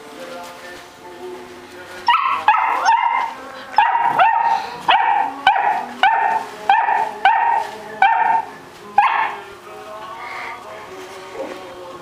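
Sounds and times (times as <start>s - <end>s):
puppy yapping: 2.1s - 9.4s.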